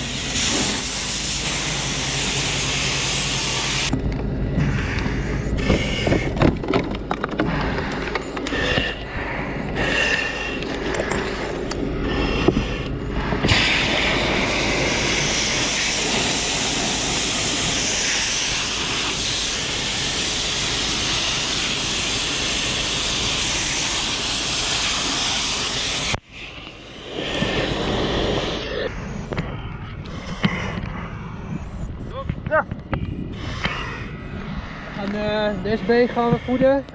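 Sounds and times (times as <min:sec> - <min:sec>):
hose nozzle spraying water: 0:13.5 - 0:26.2.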